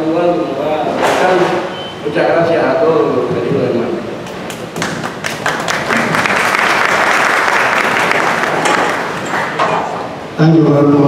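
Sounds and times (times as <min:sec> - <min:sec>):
audience applauding: 0:04.4 - 0:09.7.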